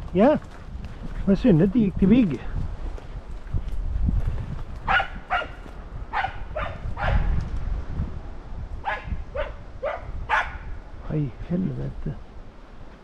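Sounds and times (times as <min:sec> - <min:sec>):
footsteps rustling through forest: 0:00.0 - 0:06.7
dog barking: 0:04.9 - 0:07.3, 0:08.8 - 0:10.7.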